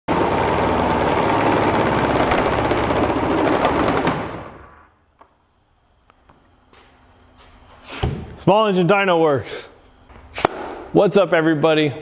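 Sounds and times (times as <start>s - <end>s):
small gas engine running hard: 0.1s - 4.6s.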